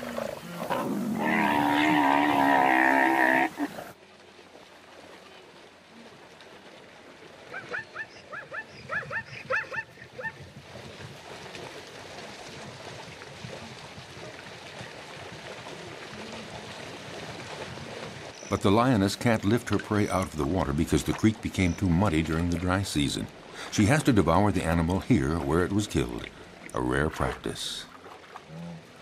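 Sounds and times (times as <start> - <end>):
zebra calling: 0.0 - 3.9.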